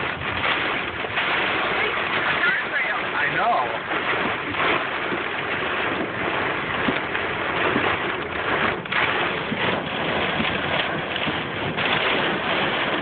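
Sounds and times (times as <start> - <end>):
hail and rain pelting car roof: 0.0 - 13.0.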